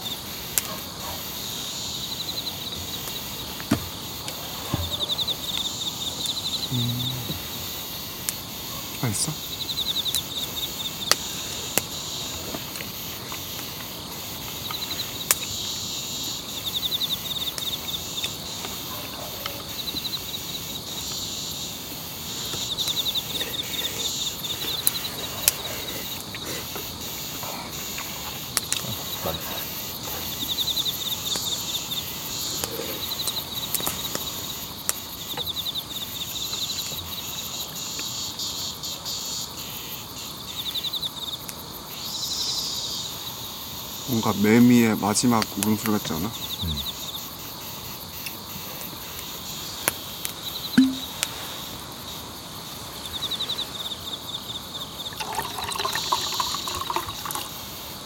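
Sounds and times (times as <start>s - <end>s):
crickets chirping in trills: 0.0s - 58.0s
high-pitched insect drone: 4.9s - 12.4s, 46.2s - 47.3s, 55.0s - 57.6s.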